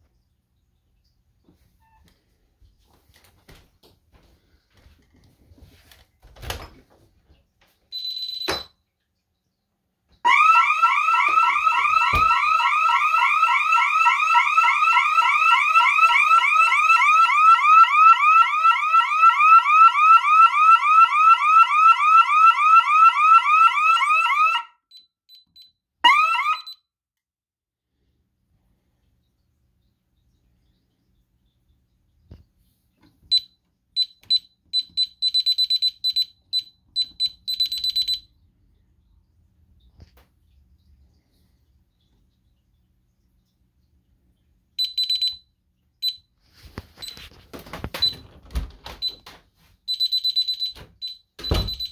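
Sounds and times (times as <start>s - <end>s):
alarm siren whooping: 10.2s - 24.8s, 26.0s - 26.8s
short high beeps: 44.8s - 45.4s.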